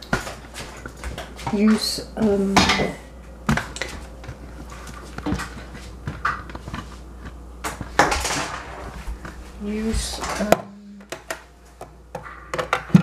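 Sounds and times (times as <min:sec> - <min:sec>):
kitchenware clatter: 0:00.0 - 0:03.0
kitchenware clicks and knocks: 0:00.0 - 0:03.7, 0:12.1 - 0:13.0.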